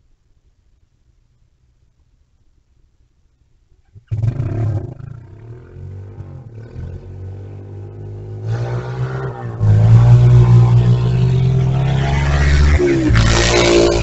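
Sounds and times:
small engine revving: 0:04.0 - 0:14.0.

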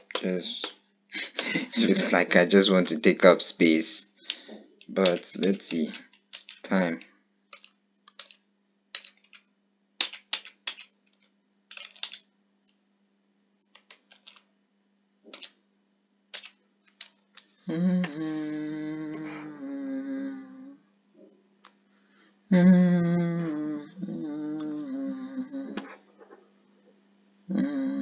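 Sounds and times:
person humming: 0:17.6 - 0:20.9, 0:22.5 - 0:26.0, 0:27.5 - 0:28.0.

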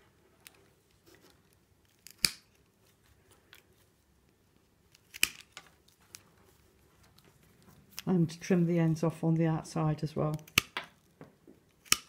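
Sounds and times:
secateurs snipping: 0:11.8 - 0:12.0.

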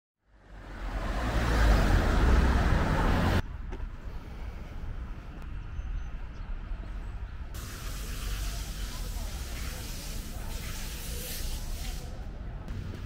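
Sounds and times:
steady outdoor background: 0:00.2 - 0:13.0
cars driving past: 0:00.3 - 0:06.2.

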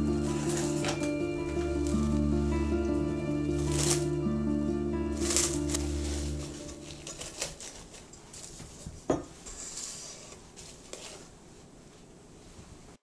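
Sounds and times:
utensils clinking against dishes: 0:00.0 - 0:01.8.

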